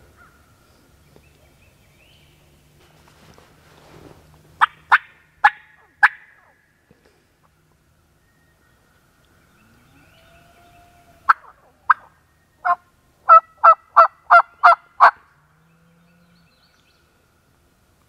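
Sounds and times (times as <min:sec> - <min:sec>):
turkey call yelps: 0:10.0 - 0:15.2.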